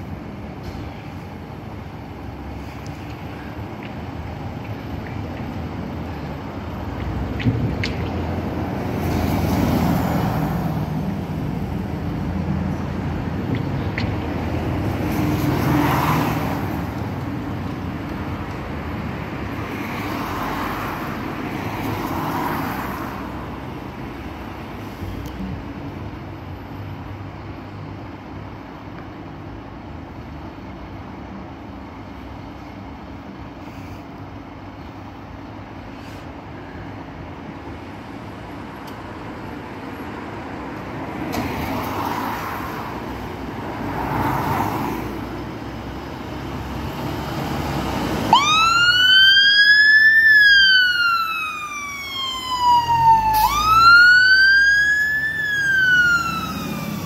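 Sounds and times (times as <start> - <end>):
fire engine rumbling: 0.0 - 57.0
car passing by: 7.6 - 11.4, 14.5 - 17.0, 19.4 - 23.6, 41.0 - 49.0, 49.8 - 57.0
siren wailing: 48.3 - 57.0.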